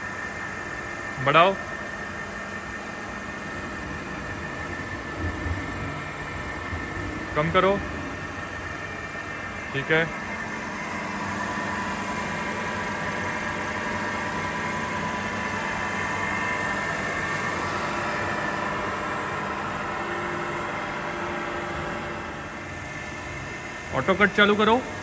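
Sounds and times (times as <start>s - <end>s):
grinder humming with whine: 0.0s - 25.0s.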